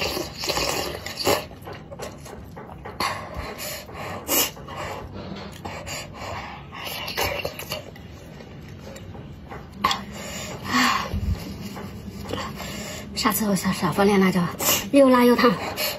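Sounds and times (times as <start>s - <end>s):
person slurping and chewing: 0.0s - 9.1s
sharp panting breaths: 3.0s - 7.1s, 9.8s - 13.2s.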